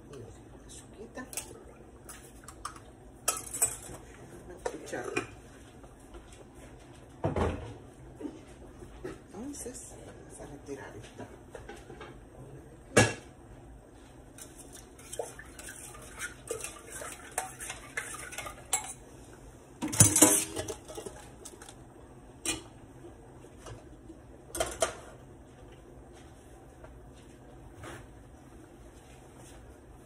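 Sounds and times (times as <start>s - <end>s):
metal pot clanking: 2.4s - 5.4s, 15.0s - 19.0s, 19.8s - 21.8s
metal spoon stirring in pot: 14.3s - 19.0s, 20.0s - 21.8s.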